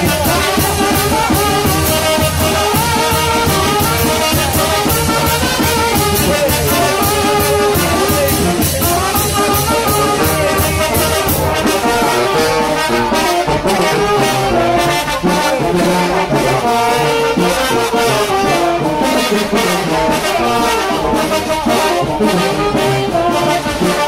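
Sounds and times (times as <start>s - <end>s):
steady drum beat: 0.0s - 13.9s
trumpets and brass: 0.0s - 24.0s.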